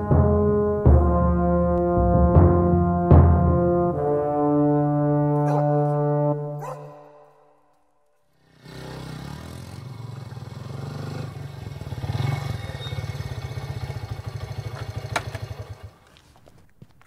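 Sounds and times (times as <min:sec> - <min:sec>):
motorcycle engine running: 0:08.4 - 0:16.2.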